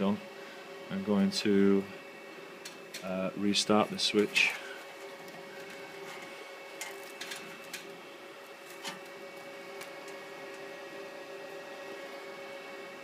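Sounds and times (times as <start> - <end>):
network switch cooling fans humming: 0.0 - 13.0
patch cables clicking: 2.6 - 3.1, 4.4 - 10.7.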